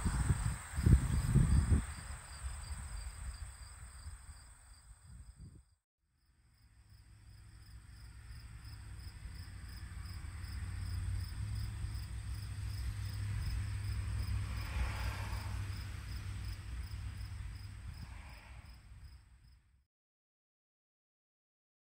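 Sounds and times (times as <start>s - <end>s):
high insect trill: 0.0s - 5.4s, 7.3s - 19.6s
wind rumble on microphone: 0.0s - 5.7s, 9.2s - 19.2s
insects chirping in pulses: 8.0s - 19.2s.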